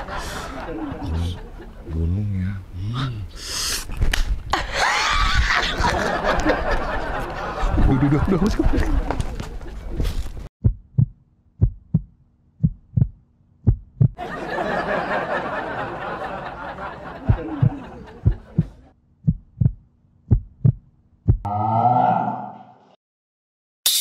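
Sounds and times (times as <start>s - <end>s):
heartbeat double thump: 10.6s - 14.2s, 17.3s - 21.5s.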